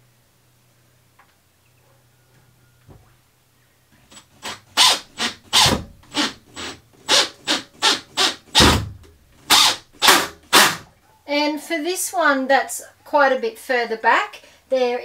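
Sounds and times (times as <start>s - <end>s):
cordless drill driving screws: 4.1s - 10.8s.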